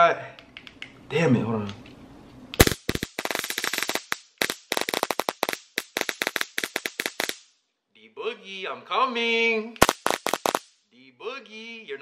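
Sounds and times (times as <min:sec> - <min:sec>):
stun gun crackling sparks: 0:02.5 - 0:07.6, 0:09.8 - 0:10.8.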